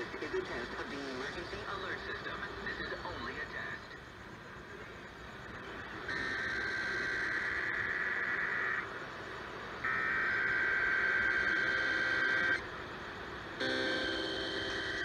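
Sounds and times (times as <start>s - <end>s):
buzzy two-tone data warble: 6.0s - 8.9s, 9.8s - 12.6s, 13.6s - 15.0s.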